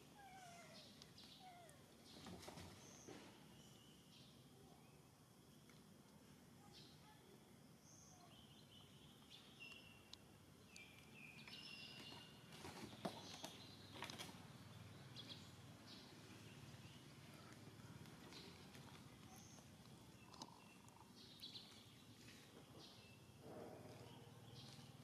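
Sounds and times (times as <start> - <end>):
low background hum: 0.0 - 25.0
faint high chirps: 2.9 - 5.1, 7.8 - 12.5, 15.0 - 25.0.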